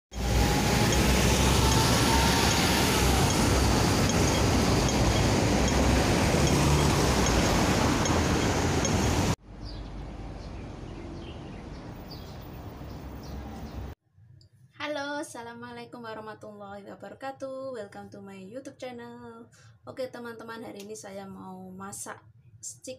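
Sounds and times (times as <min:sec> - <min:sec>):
road traffic rushing: 0:00.1 - 0:14.0.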